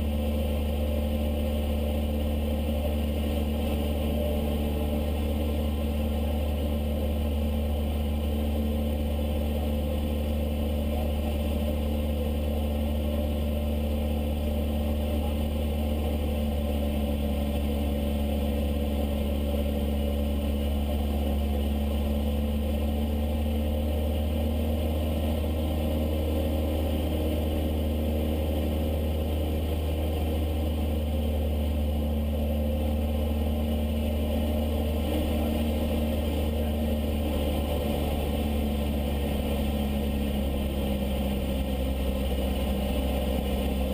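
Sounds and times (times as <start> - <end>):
light aircraft engine drone: 0.0 - 43.9.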